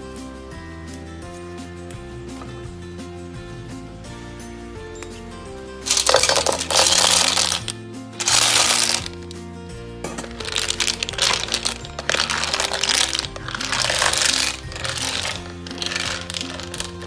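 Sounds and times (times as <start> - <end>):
background music: 0.0 - 17.0
clams clattering and sizzling in wok: 5.9 - 9.3, 10.2 - 17.0.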